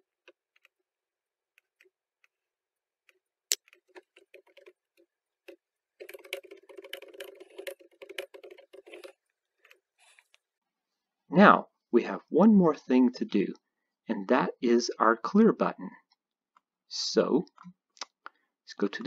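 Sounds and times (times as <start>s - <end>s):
typing on keyboard: 6.0s - 9.2s.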